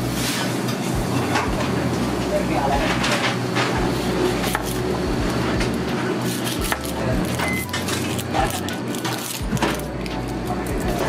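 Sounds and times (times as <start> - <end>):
background music: 3.8 - 11.0.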